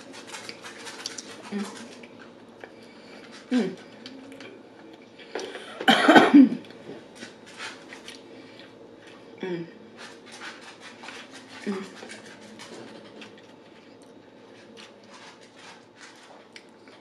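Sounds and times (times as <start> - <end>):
soft eating sounds: 0.0 - 5.9, 6.5 - 17.0
woman coughing: 5.8 - 6.6.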